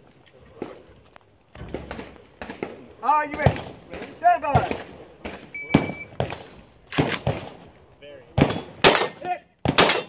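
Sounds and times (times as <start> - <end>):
rifle shots with echo: 1.7 - 7.7, 8.3 - 10.0.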